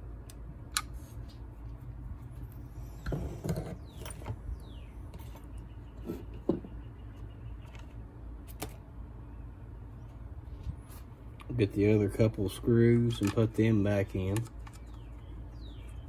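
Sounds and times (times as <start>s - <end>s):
steady low hum: 0.0s - 16.0s
tools knocking on wooden bench: 6.0s - 6.8s.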